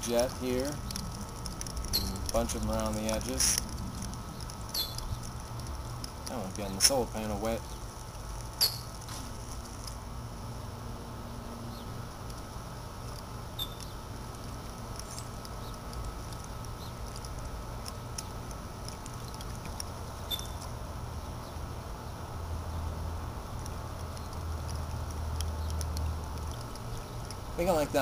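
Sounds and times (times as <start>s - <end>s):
fountain spray pattering into water: 0.0s - 8.3s
water drips ticking: 0.0s - 9.0s, 13.1s - 20.8s, 23.5s - 28.0s.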